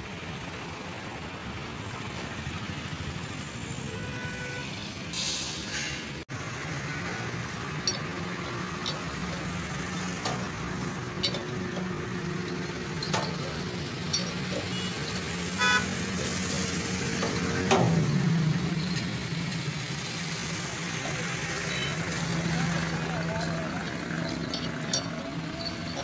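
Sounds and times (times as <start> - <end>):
vehicle horn toot: 3.9 - 4.8, 14.6 - 16.7, 21.6 - 22.1
low engine hum: 6.3 - 26.0
spanner clinking on metal screw: 6.6 - 26.0.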